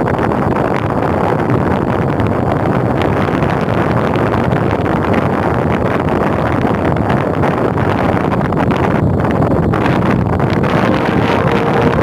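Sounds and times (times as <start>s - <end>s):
wind buffeting microphone: 0.0s - 12.0s
ship engine running: 9.0s - 12.0s.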